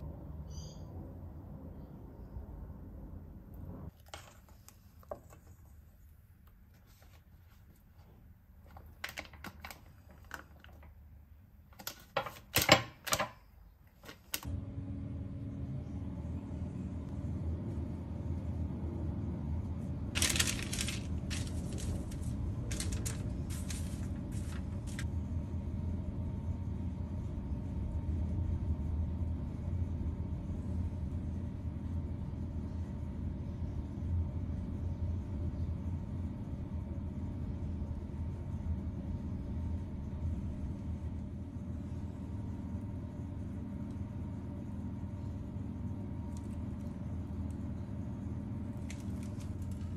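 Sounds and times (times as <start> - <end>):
steady low hum: 0.0 - 11.7, 14.4 - 49.9
baking paper crinkling: 20.0 - 25.1, 48.6 - 49.9.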